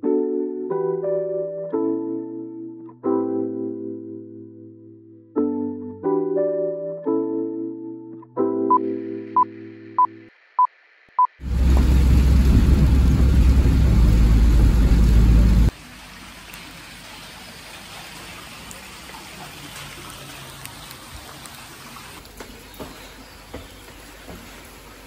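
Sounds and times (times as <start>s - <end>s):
outdoor rain hiss: 10.3s - 25.0s
car rumble: 11.4s - 15.7s
rain on car windows: 11.4s - 15.8s.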